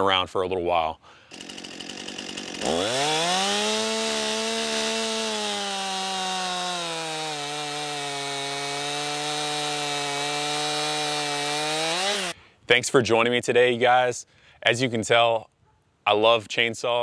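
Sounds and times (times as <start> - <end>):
chainsaw revving and cutting log: 1.2 - 12.4.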